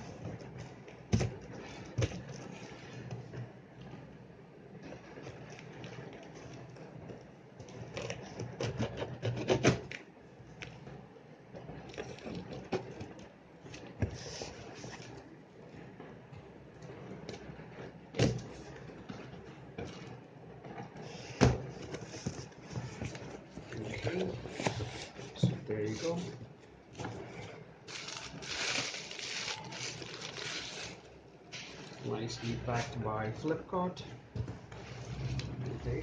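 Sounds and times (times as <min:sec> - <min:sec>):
packing tape crackling: 0:27.9 - 0:32.0
cardboard scraping: 0:34.7 - 0:36.0.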